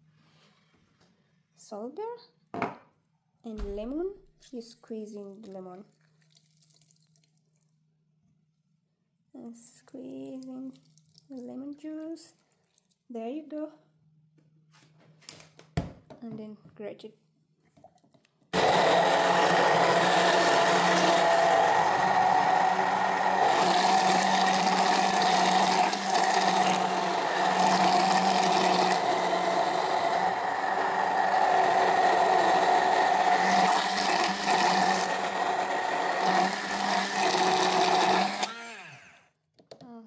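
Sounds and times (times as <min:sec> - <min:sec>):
immersion blender motor whine: 0:18.6 - 0:39.4.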